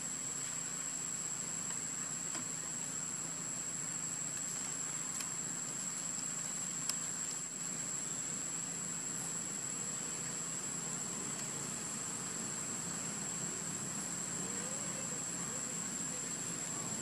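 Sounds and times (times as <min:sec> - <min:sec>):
faint ticks: 0:04.3 - 0:07.4
high-pitched insect drone: 0:07.0 - 0:17.0.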